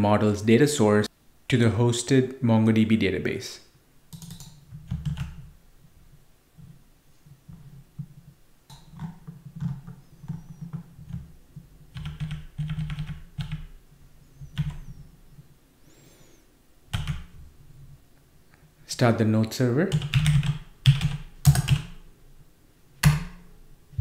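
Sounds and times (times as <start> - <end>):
keyboard typing: 4.1 - 5.5, 8.7 - 13.8, 14.4 - 15.0, 16.9 - 17.4, 19.9 - 22.0.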